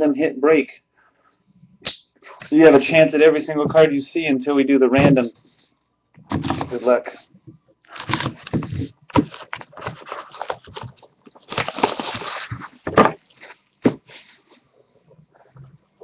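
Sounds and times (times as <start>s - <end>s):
plastic wrap crinkling and tearing: 7.9s - 13.7s
cardboard boxes knocking table: 12.8s - 13.2s.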